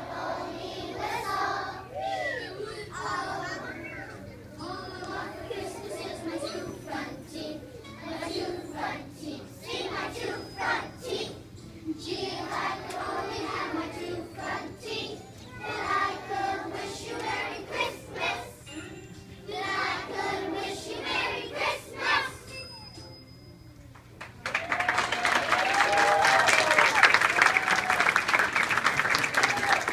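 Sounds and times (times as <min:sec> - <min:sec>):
children's choir singing: 0:00.0 - 0:18.8, 0:19.5 - 0:22.6.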